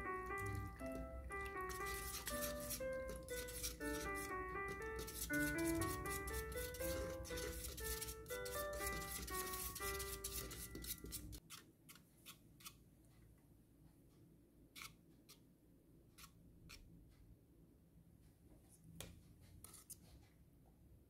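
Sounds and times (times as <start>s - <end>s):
whisk knocking against saucepan: 0.0s - 11.4s.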